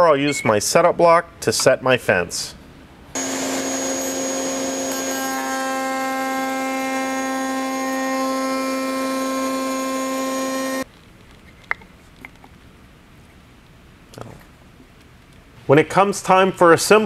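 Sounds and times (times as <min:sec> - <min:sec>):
router cutting wood: 0:03.2 - 0:10.8.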